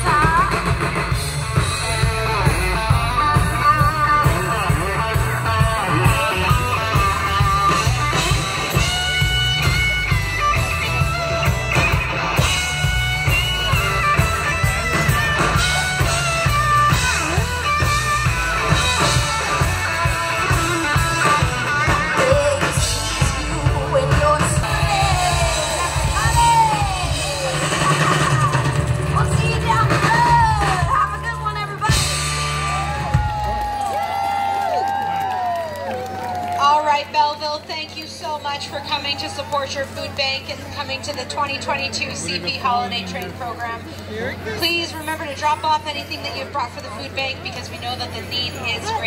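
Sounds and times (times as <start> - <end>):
live band with electric guitar: 0.0 - 49.0.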